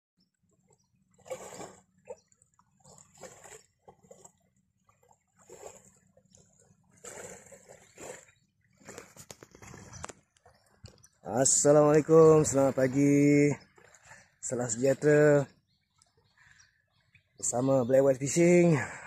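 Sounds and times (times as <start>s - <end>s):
small waves lapping on shore: 0.5s - 17.6s.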